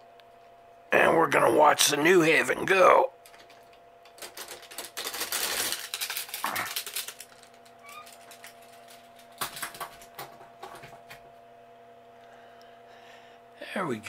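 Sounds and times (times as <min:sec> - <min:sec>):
faint steady hum: 0:00.0 - 0:14.0
hard objects clattering: 0:03.2 - 0:11.2.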